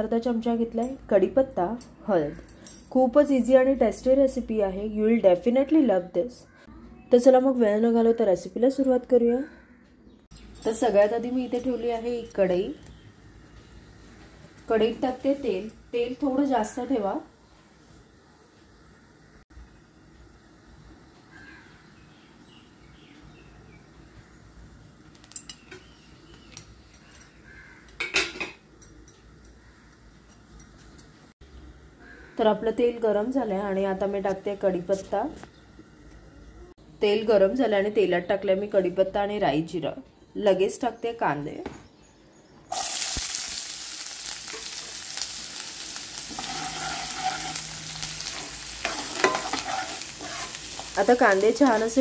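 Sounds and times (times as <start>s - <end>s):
onions sizzling in hot oil: 10.8s - 21.8s, 42.7s - 52.0s
spatula clattering: 46.2s - 52.0s
metal spatula clinking on pan: 46.3s - 51.4s.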